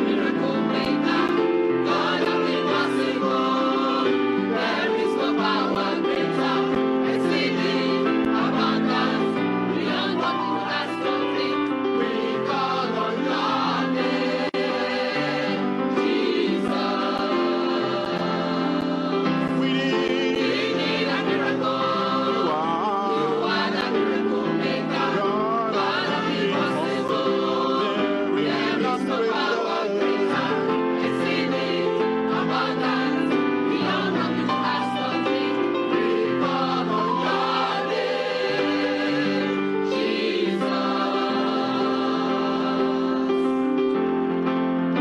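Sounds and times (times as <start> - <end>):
mixed choir singing gospel: 0.0 - 45.0.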